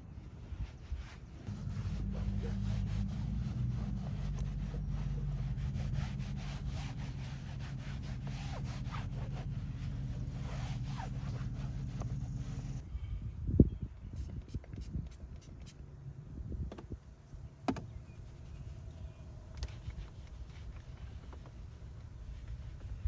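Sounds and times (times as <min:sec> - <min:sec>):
scratchy scraping strokes: 0:00.4 - 0:12.8.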